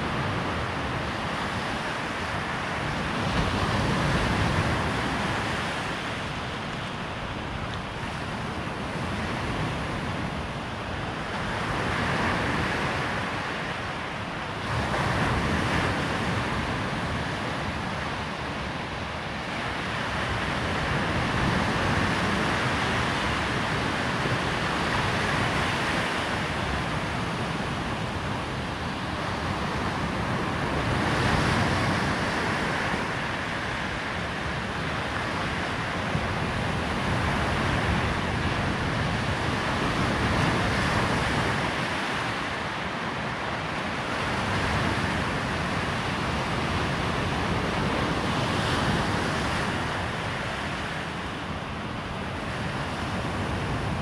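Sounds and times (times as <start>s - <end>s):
surf breaking on shore: 0.0s - 54.0s.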